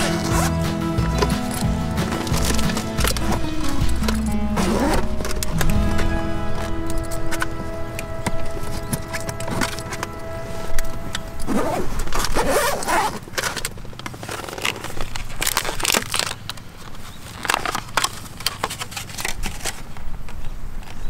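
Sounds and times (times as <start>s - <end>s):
background music chord: 0.0s - 12.1s
scraping and rustling handling: 0.0s - 21.0s.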